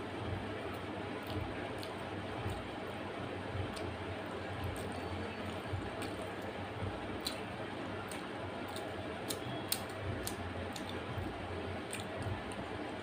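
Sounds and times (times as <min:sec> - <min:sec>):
steady low hum: 0:00.0 - 0:13.0
wet chewing mouth clicks: 0:07.2 - 0:11.1, 0:11.8 - 0:12.6.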